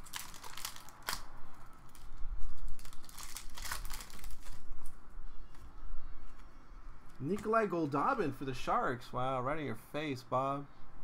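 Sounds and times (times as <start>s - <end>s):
foil wrapper crinkling and tearing: 0.0s - 4.9s.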